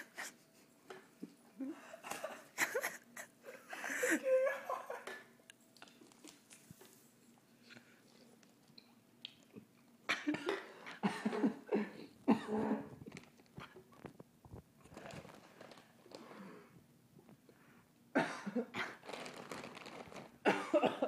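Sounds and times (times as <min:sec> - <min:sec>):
man laughing and coughing: 0:01.9 - 0:05.2, 0:10.1 - 0:12.9, 0:18.2 - 0:19.0, 0:20.5 - 0:21.0.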